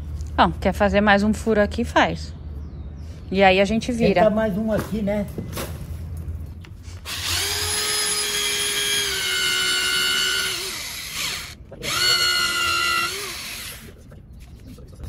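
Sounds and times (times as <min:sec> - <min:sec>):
electric drill boring into wood: 0:07.1 - 0:13.9.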